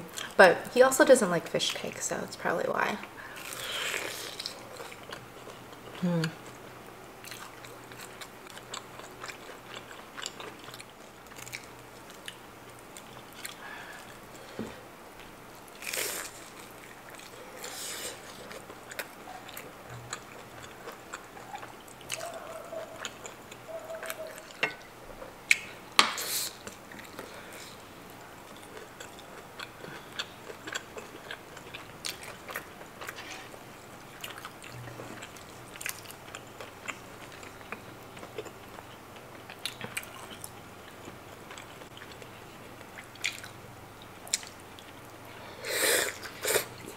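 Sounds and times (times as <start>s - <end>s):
chewing and biting food: 3.4s - 6.6s, 7.2s - 14.2s, 15.6s - 24.8s, 28.4s - 43.6s.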